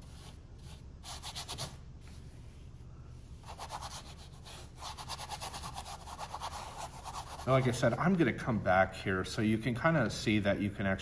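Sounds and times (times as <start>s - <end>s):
paintbrush scratching on canvas: 3.4s - 7.8s.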